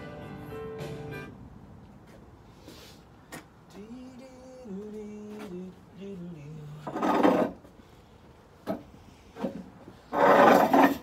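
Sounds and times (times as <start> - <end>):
chair scraping: 6.9 - 7.6, 9.4 - 11.0.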